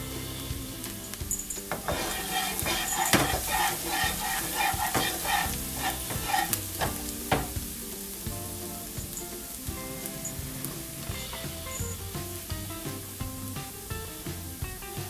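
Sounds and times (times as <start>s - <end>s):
garlic sizzling in hot oil: 0.0s - 15.0s
ladle knocking on pan: 1.2s - 15.0s
metal ladle stirring and scraping: 1.7s - 7.6s.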